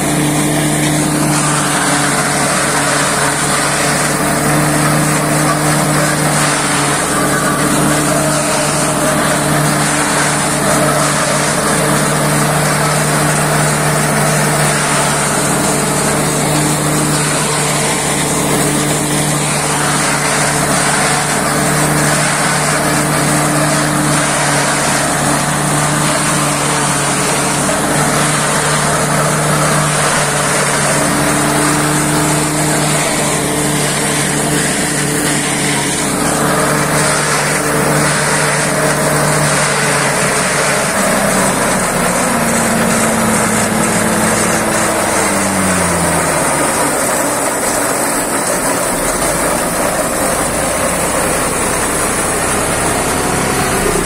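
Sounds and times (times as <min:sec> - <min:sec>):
harvester engine running: 0:00.0 - 0:54.0.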